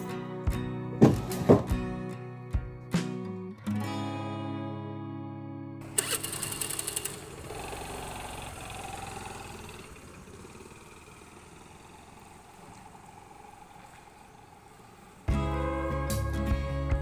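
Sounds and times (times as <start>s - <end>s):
guitar music: 0.0s - 6.0s, 15.2s - 17.0s
scooter engine starting and running: 5.8s - 17.0s.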